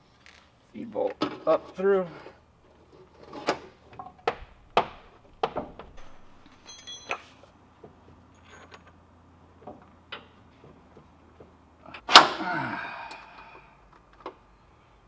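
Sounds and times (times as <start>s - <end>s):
metallic clinks of bolt and tools: 5.9s - 7.5s, 8.3s - 9.0s.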